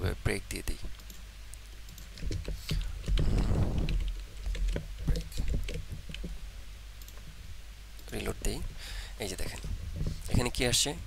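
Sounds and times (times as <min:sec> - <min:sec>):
rustling noise: 0:02.4 - 0:04.5.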